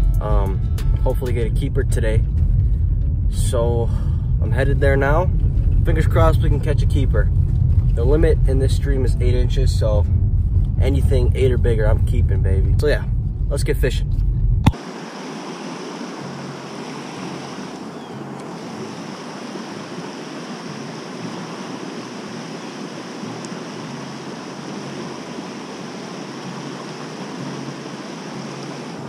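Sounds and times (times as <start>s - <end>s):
stream rushing over riffles: 14.8s - 29.0s.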